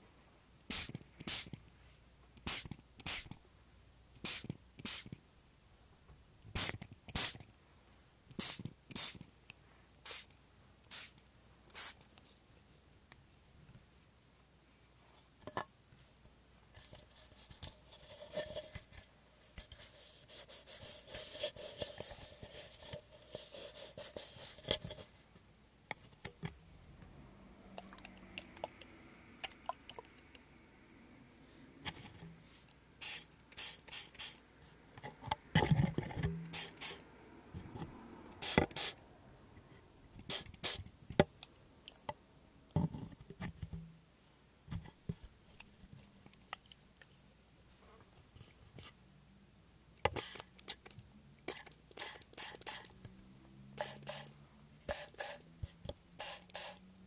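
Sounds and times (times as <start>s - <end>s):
spray bottle squirting: 0.7s - 1.6s, 2.4s - 3.4s, 4.2s - 5.1s, 6.6s - 7.4s, 8.4s - 9.2s, 10.0s - 10.3s, 10.9s - 11.2s, 11.8s - 12.0s, 33.0s - 34.4s, 36.5s - 37.0s, 38.4s - 39.0s, 40.2s - 40.8s, 50.2s - 50.8s, 51.5s - 53.0s, 53.8s - 54.3s, 54.9s - 55.4s, 56.2s - 56.8s.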